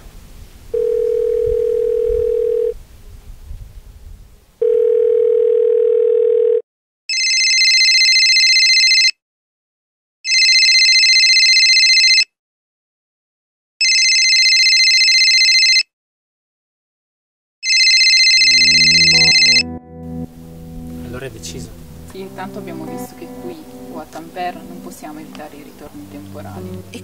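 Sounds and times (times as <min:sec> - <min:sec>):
telephone line beep: 0:00.8 - 0:02.8, 0:04.6 - 0:09.1, 0:13.8 - 0:15.8, 0:17.6 - 0:19.6
telephone ringing electronically: 0:00.8 - 0:02.8, 0:04.6 - 0:09.1, 0:10.3 - 0:12.2, 0:13.8 - 0:15.8, 0:17.6 - 0:18.6.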